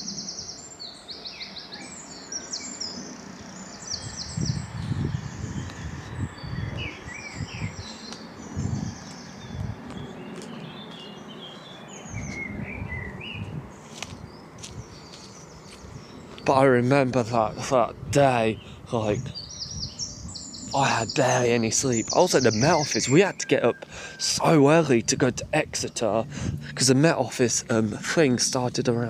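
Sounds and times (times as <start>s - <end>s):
songbirds singing: 0.0s - 29.0s
footsteps on dirt path: 7.8s - 12.6s, 13.4s - 16.6s.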